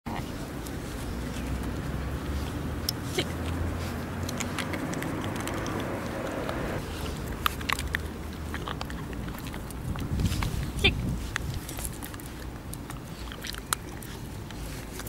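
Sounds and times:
low traffic rumble: 0:00.1 - 0:15.0
dog mouthing plastic ball: 0:04.2 - 0:15.0.

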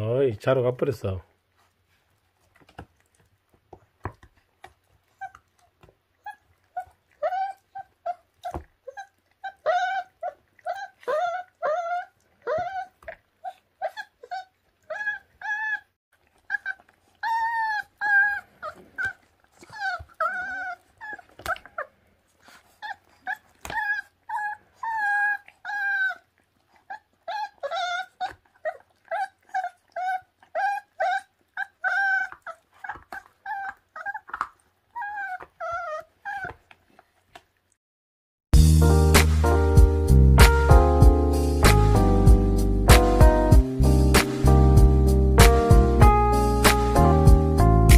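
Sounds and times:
puppies whimpering and yelping: 0:05.0 - 0:37.0
music: 0:38.6 - 0:47.9.

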